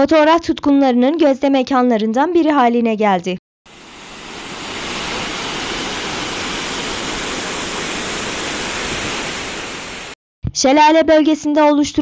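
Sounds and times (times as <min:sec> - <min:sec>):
waterfall rushing: 0:03.7 - 0:10.2.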